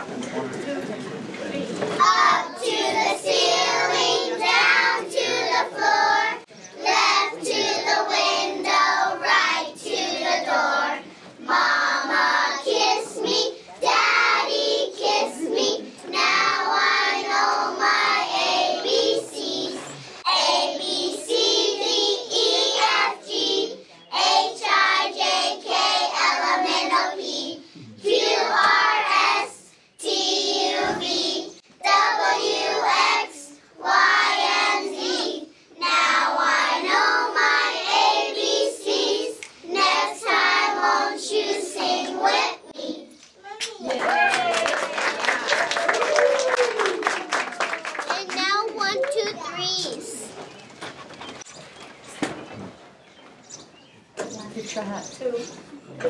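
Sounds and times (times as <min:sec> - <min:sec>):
children singing: 0:01.9 - 0:43.1.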